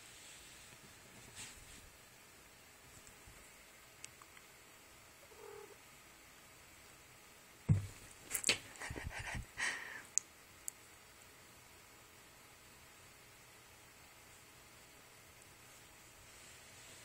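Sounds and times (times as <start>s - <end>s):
sudden thump: 7.7s - 8.1s.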